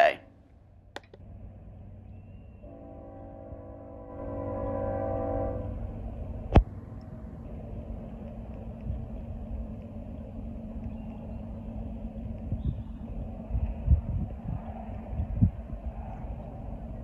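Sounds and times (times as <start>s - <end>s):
train rumbling: 0.0s - 17.0s
train air horn chord: 2.6s - 6.0s.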